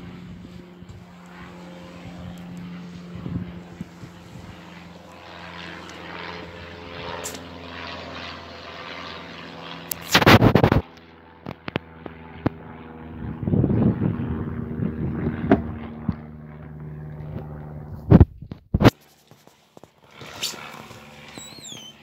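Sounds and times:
wind on microphone: 0:00.0 - 0:04.8, 0:13.2 - 0:16.3
distant engine drone: 0:00.0 - 0:22.0.

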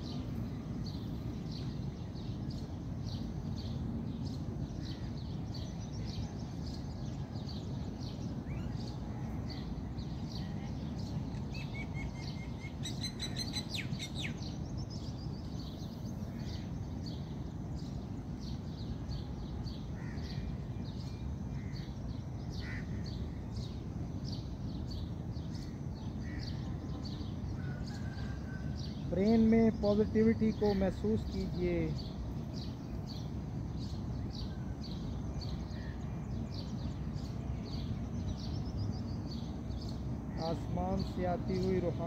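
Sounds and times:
low background rumble: 0:00.0 - 0:42.0
small birds chirping: 0:00.0 - 0:42.0
bird trill: 0:08.1 - 0:17.3.

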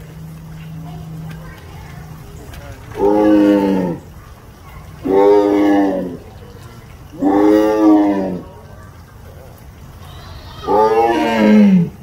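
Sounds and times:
tiger roaring: 0:02.9 - 0:04.0, 0:05.0 - 0:06.2, 0:07.1 - 0:08.5, 0:10.7 - 0:12.0.

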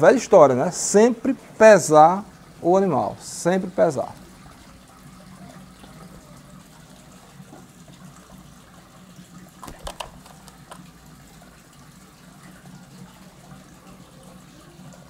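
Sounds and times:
wings flapping: 0:09.6 - 0:10.8.

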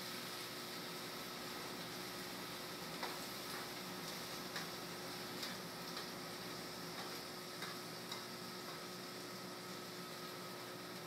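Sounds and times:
food sizzling in a hot pan: 0:00.0 - 0:11.0
metal tongs clicking against pan: 0:07.0 - 0:08.8.

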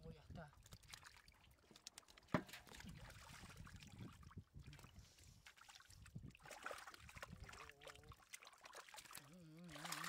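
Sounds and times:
shallow water sloshing: 0:00.5 - 0:10.0.

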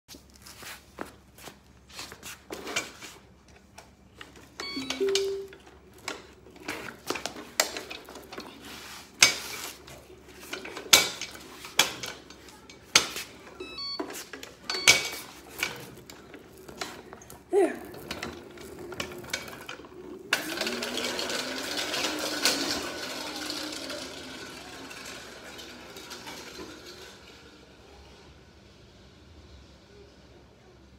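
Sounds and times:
short two-note tone: 0:04.8 - 0:05.6
hoverboard motors whirring: 0:15.3 - 0:26.3.

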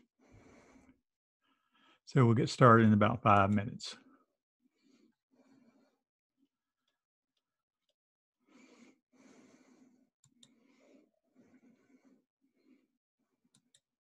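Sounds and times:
faint breathing: 0:00.1 - 0:02.0, 0:08.4 - 0:13.0.

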